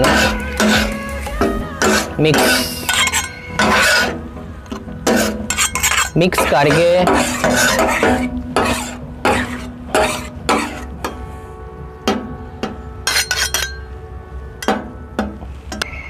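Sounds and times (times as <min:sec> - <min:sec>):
metal spatulas scraping on griddle: 0:00.0 - 0:00.9, 0:01.8 - 0:04.2, 0:05.0 - 0:11.0.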